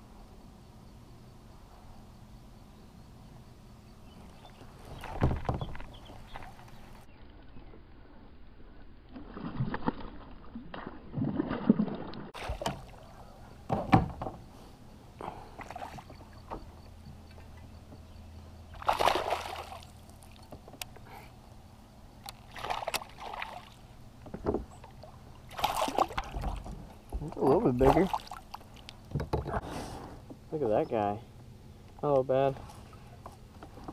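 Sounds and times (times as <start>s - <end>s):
paddle splashing: 9.1s - 13.2s, 18.8s - 20.4s, 22.3s - 23.9s, 24.8s - 27.0s, 27.7s - 29.7s
water sloshing around kayak hull: 9.2s - 14.2s, 22.3s - 29.7s.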